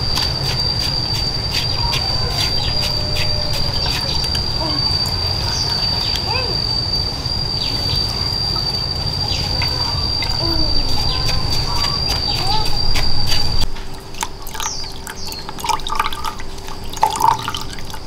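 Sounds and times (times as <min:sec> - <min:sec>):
birds chirping: 0:00.0 - 0:13.7, 0:14.5 - 0:17.7
wind rumble on microphone: 0:00.0 - 0:13.7
steady high whine: 0:00.0 - 0:18.0.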